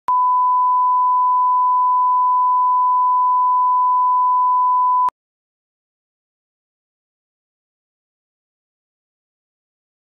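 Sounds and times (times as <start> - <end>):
pure test tone beep: 0.1 - 5.1.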